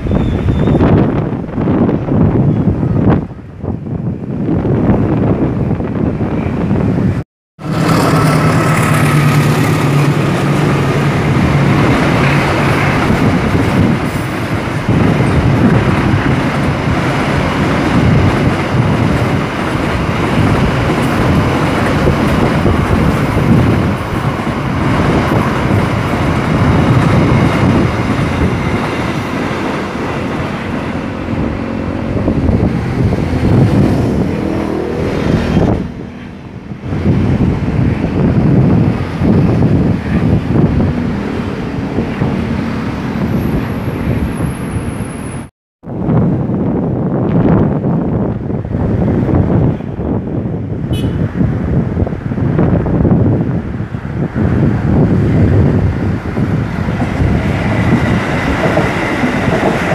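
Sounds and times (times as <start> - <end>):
train wagons rattling on rails: 7.6 - 45.3, 54.5 - 59.9
locomotive engine drone: 7.6 - 45.5.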